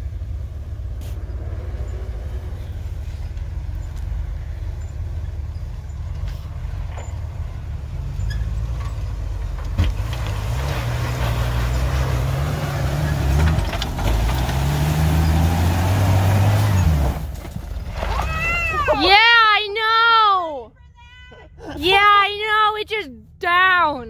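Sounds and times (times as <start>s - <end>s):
engine running at low speed: 0.0s - 18.1s.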